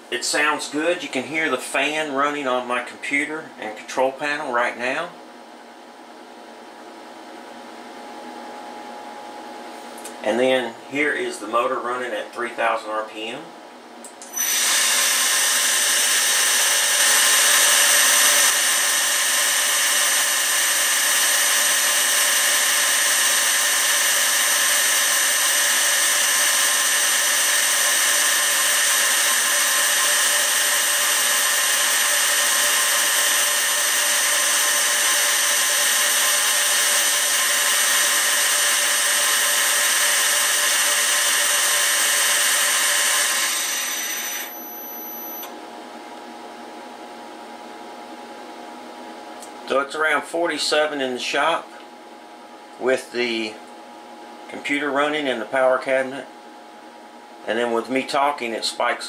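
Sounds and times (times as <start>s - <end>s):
mill motor whining: 14.2s - 45.5s.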